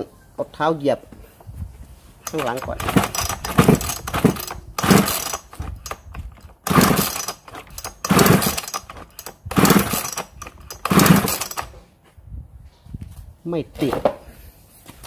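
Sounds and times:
chainsaw starter cord pulled: 2.2 - 11.8.

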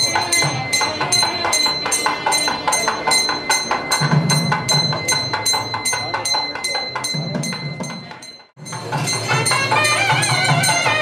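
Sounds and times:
hand bell ringing: 0.0 - 11.0.

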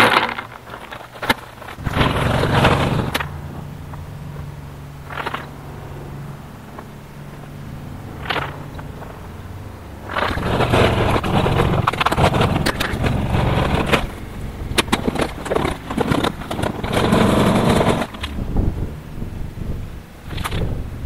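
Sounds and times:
pebbles clattering in a tub: 0.0 - 3.3, 5.0 - 5.6
wagon wheels rumbling on asphalt: 0.0 - 21.0.

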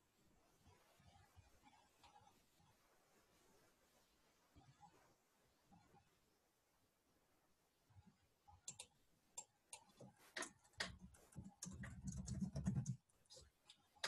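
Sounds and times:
computer keyboard typing: 8.6 - 13.0
mouse clicking: 8.6 - 13.0.

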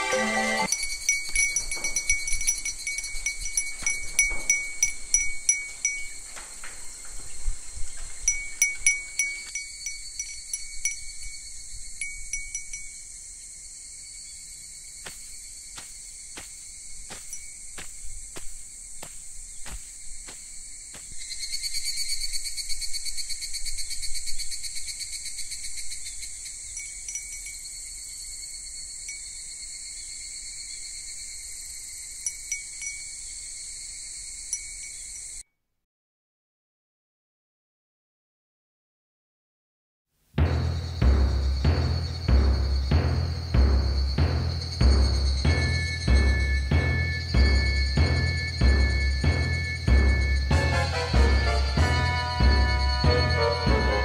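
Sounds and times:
insects chirring: 0.2 - 35.4, 40.4 - 54.0.

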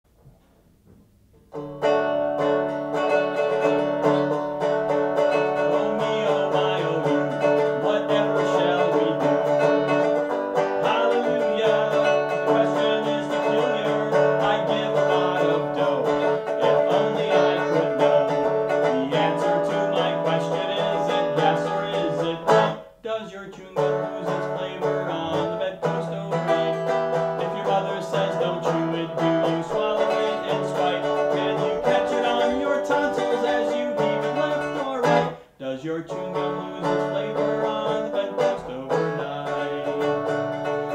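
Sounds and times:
resonator guitar playing: 1.4 - 23.0, 23.6 - 35.5, 36.1 - 40.9.

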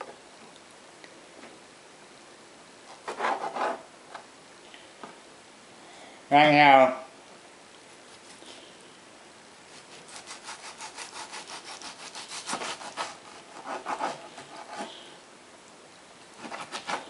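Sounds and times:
knife sawing through raw meat: 9.7 - 14.9, 16.4 - 17.0.

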